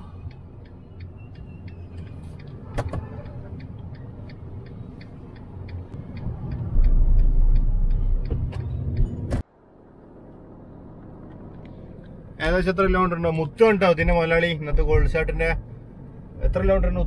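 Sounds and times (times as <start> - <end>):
light ticking: 0.0 - 9.2
car driving rumble: 0.0 - 17.0.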